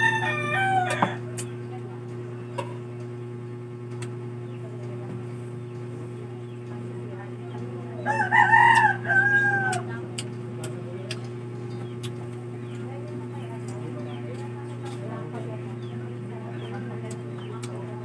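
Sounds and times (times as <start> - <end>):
rooster crowing: 0.0 - 1.3, 8.0 - 9.9
steady low hum: 0.0 - 18.0.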